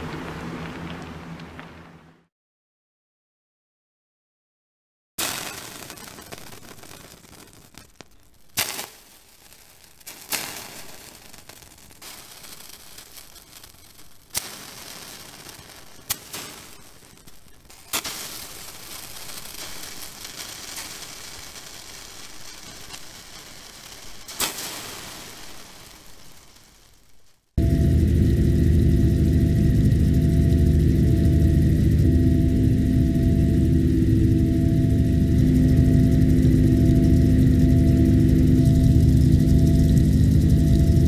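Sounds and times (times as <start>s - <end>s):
steady hiss and crackle: 0.0s - 2.1s, 5.2s - 41.0s
mechanical hum: 0.0s - 2.3s, 26.9s - 41.0s
water drops sizzling on hot steel: 5.2s - 27.5s.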